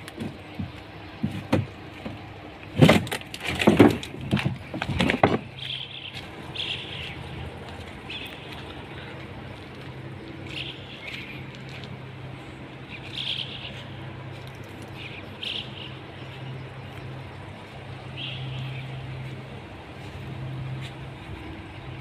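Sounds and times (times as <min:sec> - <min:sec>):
short bird calls: 0:05.6 - 0:07.3, 0:13.0 - 0:14.0.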